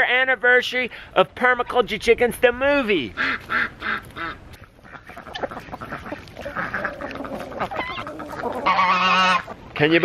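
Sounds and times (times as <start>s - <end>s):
ducks quacking: 3.1s - 9.6s
chickens clucking: 3.1s - 10.0s.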